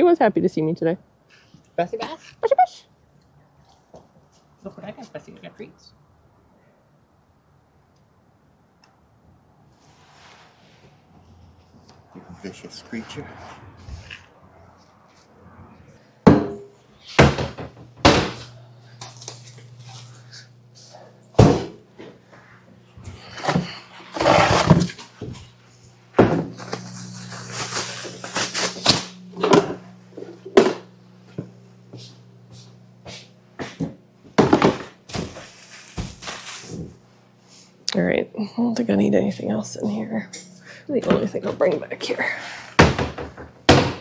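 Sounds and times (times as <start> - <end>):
steady low hum: 10.9 - 44.0.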